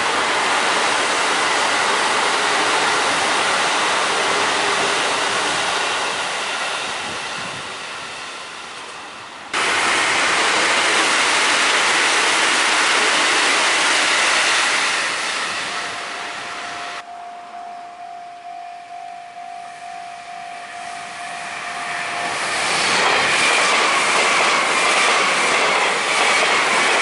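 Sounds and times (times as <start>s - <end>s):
train wheels rushing on rail: 0.0s - 17.0s, 20.7s - 27.0s
level crossing bell ringing: 16.8s - 22.4s.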